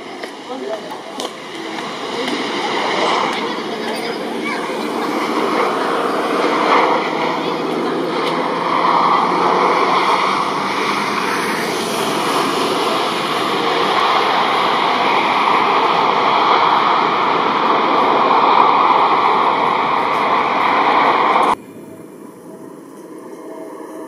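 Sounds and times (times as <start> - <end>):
jet engine roar: 0.0 - 24.0
faint steady whine: 11.2 - 24.0.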